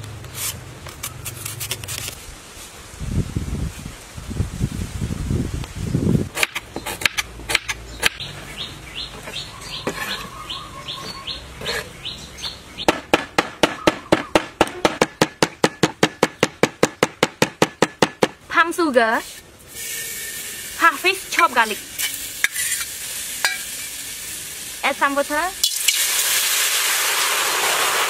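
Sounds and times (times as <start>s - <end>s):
bird chirping: 7.8s - 13.0s, 13.6s - 14.8s.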